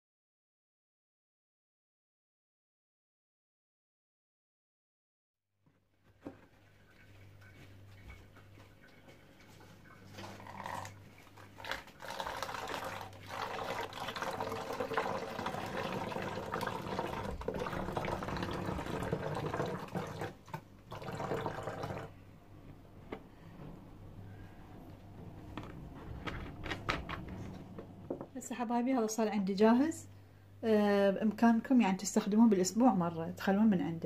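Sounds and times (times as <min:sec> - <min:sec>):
liquid pouring into plastic bottle: 0:06.2 - 0:22.1.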